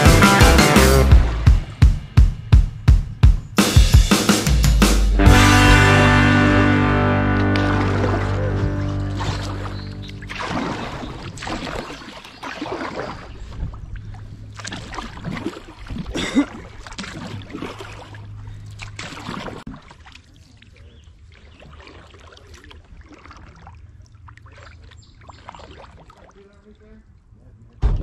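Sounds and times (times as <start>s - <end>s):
water lapping: 7.0s - 27.8s
paddle strokes splashing in water: 7.3s - 26.6s.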